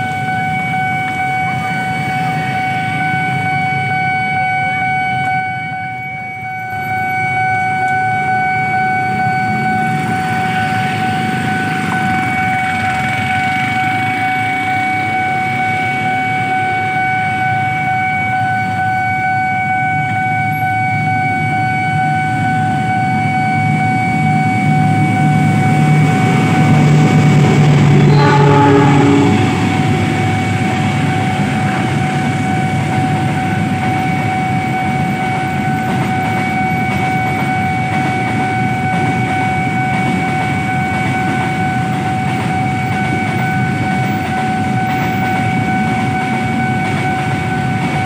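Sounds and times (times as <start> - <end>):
diesel locomotive engine: 0.0 - 48.0
level crossing warning alarm: 0.0 - 48.0
idling motorbikes and cars: 6.5 - 17.5.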